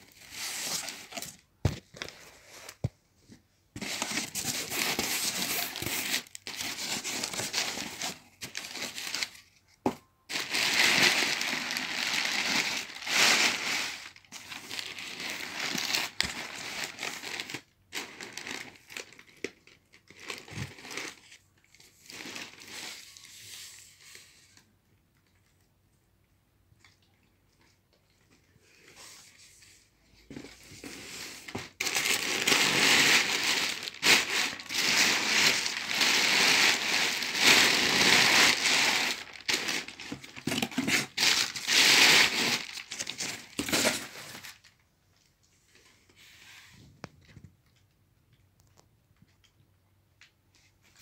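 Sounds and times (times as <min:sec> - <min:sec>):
packing paper rustling: 0:00.0 - 0:02.9, 0:03.8 - 0:09.6, 0:10.3 - 0:24.2, 0:30.3 - 0:44.8.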